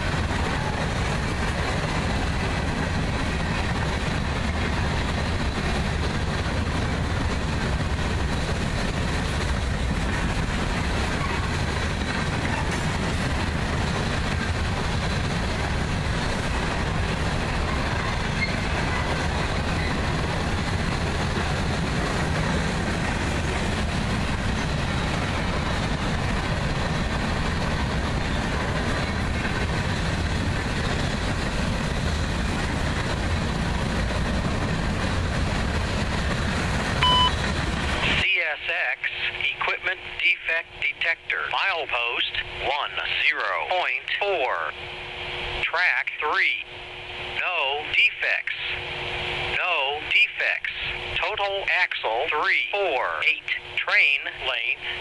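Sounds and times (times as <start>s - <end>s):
freight train rolling past: 0.0s - 55.0s
short beep: 37.0s - 37.4s.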